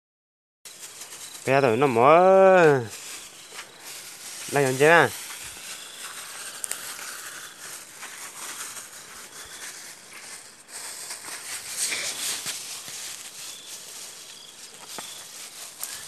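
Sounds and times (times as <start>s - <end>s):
leafy branches rustling: 0.7s - 16.0s
plastic bags crinkling: 0.7s - 16.0s.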